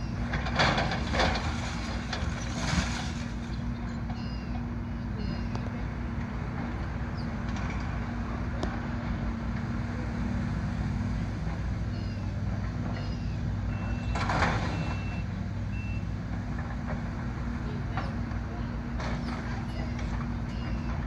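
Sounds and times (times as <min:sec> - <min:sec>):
excavator diesel engine running: 0:00.0 - 0:21.0
crashing debris: 0:00.5 - 0:03.5
reversing alarm beeps: 0:04.1 - 0:05.8, 0:11.9 - 0:16.2, 0:19.6 - 0:21.0.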